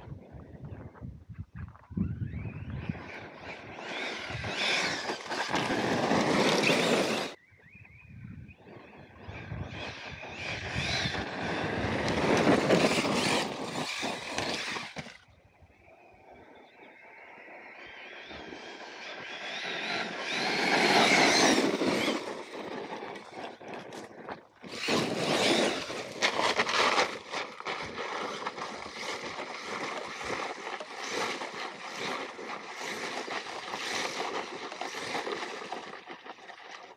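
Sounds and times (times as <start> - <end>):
electric motor whining: 2.3 - 7.4, 9.9 - 15.2, 19.1 - 24.0, 24.6 - 35.8
tyres scrabbling on gravel: 3.7 - 7.4, 10.8 - 15.2, 19.7 - 36.9.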